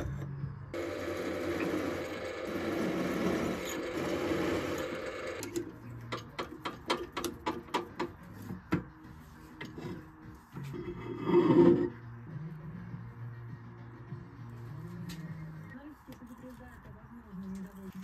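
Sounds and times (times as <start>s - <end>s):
drill press cutting metal: 0.8s - 5.7s
sharp metallic clicks and taps: 5.4s - 8.8s.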